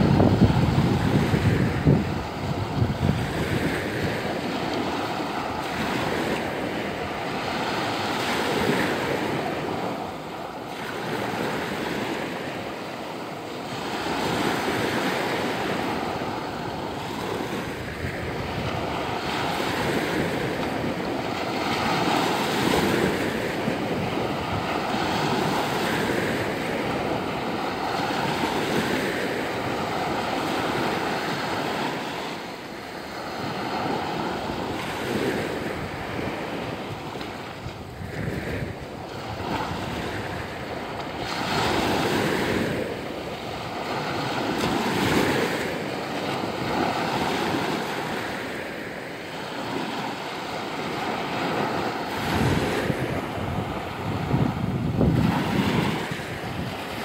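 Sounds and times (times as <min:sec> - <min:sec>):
small waves breaking on shore: 0:00.0 - 0:57.0.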